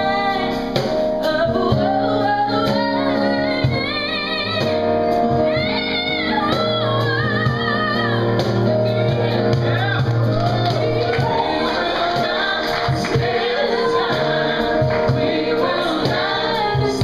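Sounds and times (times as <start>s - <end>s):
woman singing with vibrato: 0.0s - 4.7s, 5.5s - 17.0s
band accompaniment: 0.0s - 17.0s
steady percussion beat: 9.4s - 17.0s.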